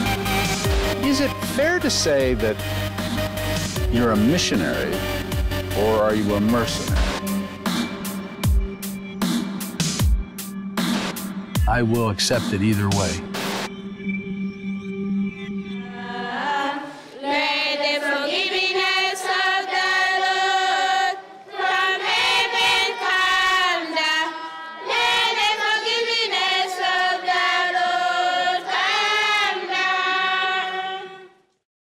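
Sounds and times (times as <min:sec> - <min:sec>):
choir singing: 0:03.9 - 0:08.4, 0:15.1 - 0:31.4.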